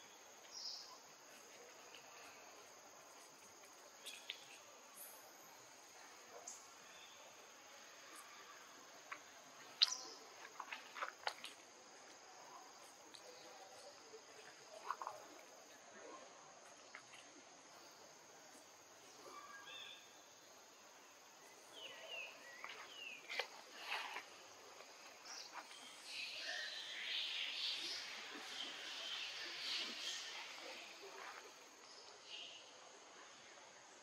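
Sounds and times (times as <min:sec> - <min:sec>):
short chirping calls: 0:09.7 - 0:10.3.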